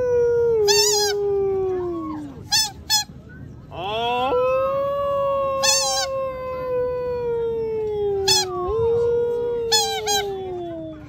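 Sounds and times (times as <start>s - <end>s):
man's howl-like hunting call: 3.7s - 7.4s.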